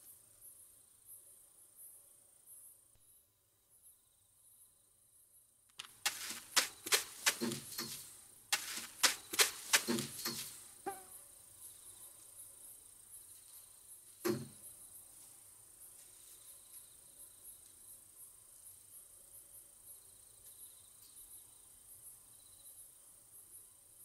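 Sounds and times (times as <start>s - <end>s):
crickets chirping: 0.0s - 24.0s
wire-mesh fence rattling: 5.8s - 10.6s.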